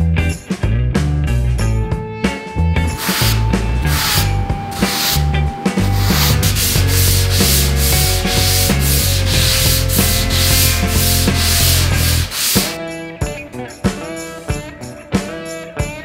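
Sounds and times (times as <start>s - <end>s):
sanding block scratching foam: 3.0s - 12.8s.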